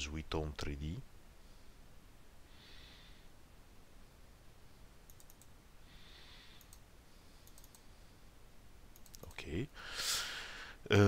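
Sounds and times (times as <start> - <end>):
computer mouse clicks: 5.1 - 5.5, 6.6 - 7.9, 8.9 - 9.4.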